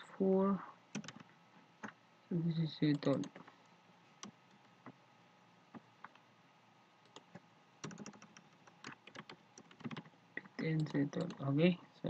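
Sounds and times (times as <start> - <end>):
faint keyboard typing: 0.9 - 2.0, 2.8 - 3.6, 7.0 - 11.6.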